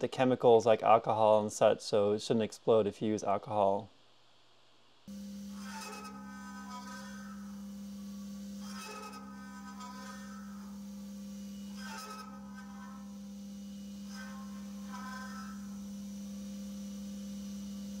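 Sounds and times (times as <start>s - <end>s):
cutter chattering squeals: 5.1s - 16.1s
mill cutting metal: 5.1s - 18.0s.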